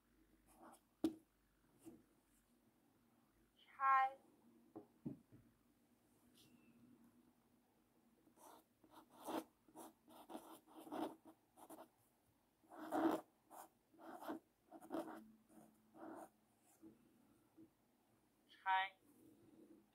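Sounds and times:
marker writing on paper: 0:08.4 - 0:11.9, 0:12.7 - 0:16.8.

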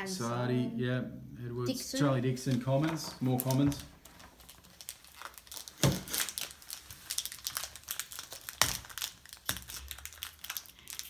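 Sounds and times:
foil packets crinkling and tearing: 0:02.4 - 0:11.0.

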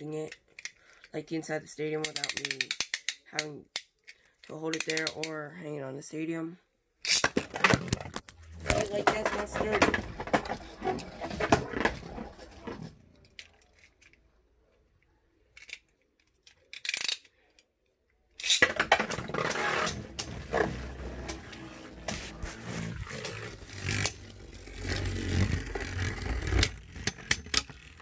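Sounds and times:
spinning tops scraping and rattling: 0:18.4 - 0:28.0.

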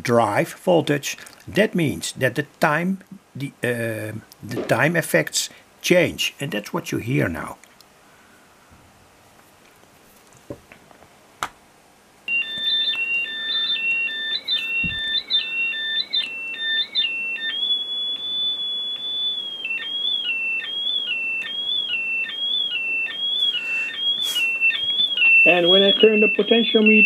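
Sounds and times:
synthesizer square-wave beeping: 0:12.3 - 0:27.0.

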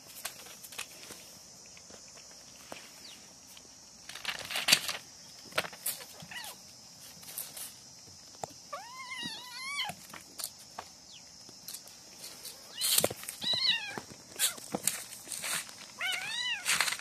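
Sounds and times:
scuffling knocks and rustles: 0:00.0 - 0:17.0
kitten meowing: 0:12.7 - 0:14.5.

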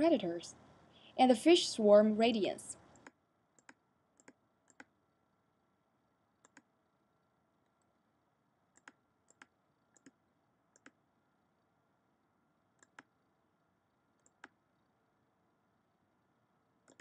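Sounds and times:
computer mouse clicks: 0:02.8 - 0:05.0, 0:06.4 - 0:06.7, 0:08.7 - 0:11.0, 0:12.8 - 0:13.2, 0:14.2 - 0:14.6.

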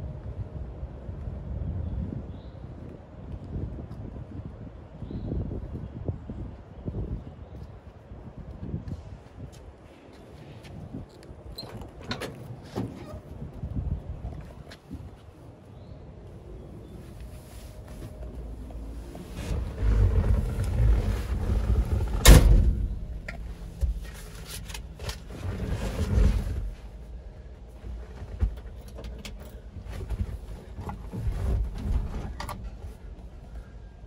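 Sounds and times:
low rumbles and clunks: 0:10.8 - 0:15.2, 0:16.3 - 0:34.0.

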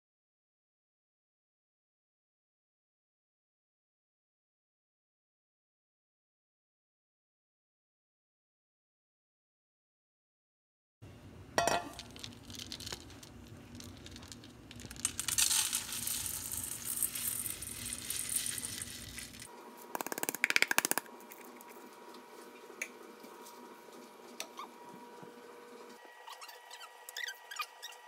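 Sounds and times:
wax pellets pouring into metal bowl: 0:11.9 - 0:19.5.

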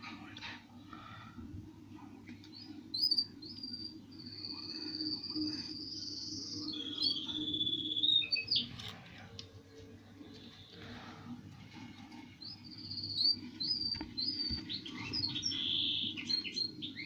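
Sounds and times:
bird chirps and whistles: 0:03.0 - 0:08.7.

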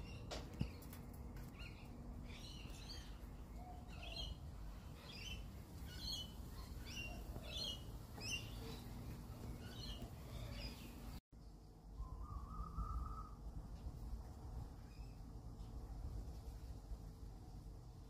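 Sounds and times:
magpies chirping: 0:05.0 - 0:11.2.

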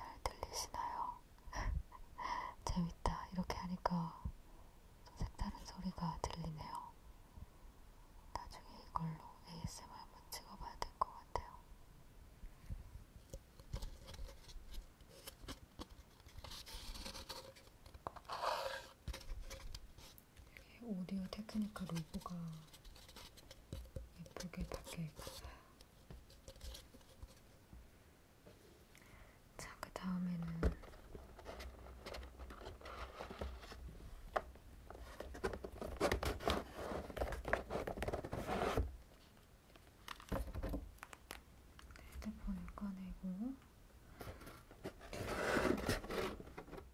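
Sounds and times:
dry scraping rub of pulp: 0:18.2 - 0:19.0, 0:36.0 - 0:38.9, 0:45.0 - 0:46.4.

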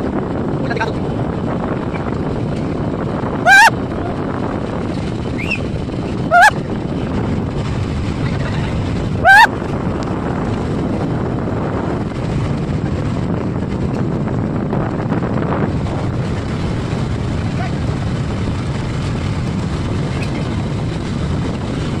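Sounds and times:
motorboat engine running: 0:00.0 - 0:22.0
wind buffeting microphone: 0:00.0 - 0:22.0
short loud rising call: 0:03.4 - 0:03.7.

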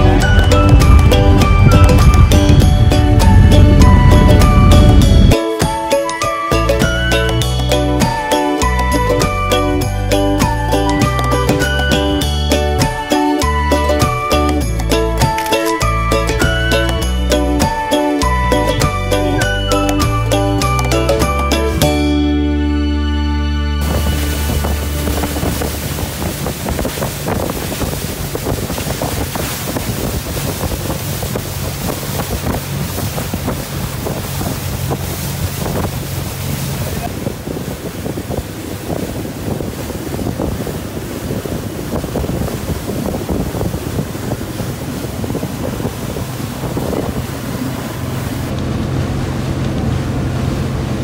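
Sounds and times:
wind buffeting microphone: 0:00.0 - 0:05.9, 0:23.8 - 0:51.0
water rushing past hull: 0:00.0 - 0:23.0, 0:23.6 - 0:51.0
motorboat engine hum: 0:00.0 - 0:51.0.

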